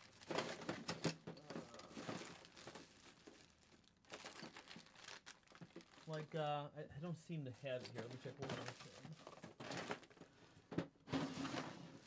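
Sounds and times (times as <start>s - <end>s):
hands rummaging rustling: 0.0s - 6.2s.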